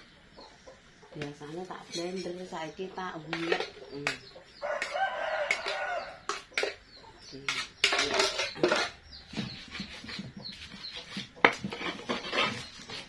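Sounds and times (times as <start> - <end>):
metal pot clanking: 3.3 - 4.2, 7.5 - 9.0.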